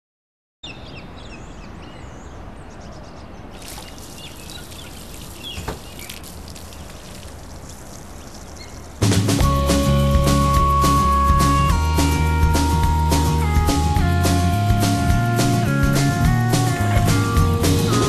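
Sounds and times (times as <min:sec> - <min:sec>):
small birds chirping: 0:00.6 - 0:09.2.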